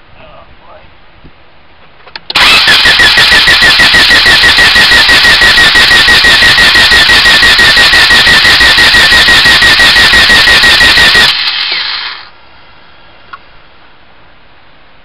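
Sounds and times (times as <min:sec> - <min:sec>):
engine cranked by starter: 0:02.2 - 0:12.3.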